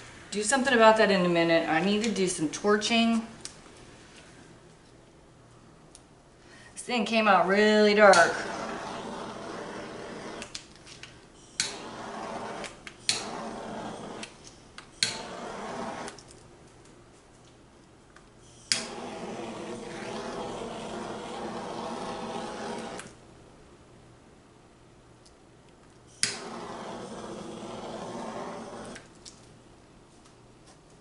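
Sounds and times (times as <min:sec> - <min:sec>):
torch flame hissing: 0:08.1 - 0:10.6, 0:11.4 - 0:14.4, 0:15.0 - 0:16.2, 0:18.6 - 0:23.2, 0:26.1 - 0:29.1
torch igniter click: 0:18.7 - 0:19.0, 0:26.2 - 0:26.6.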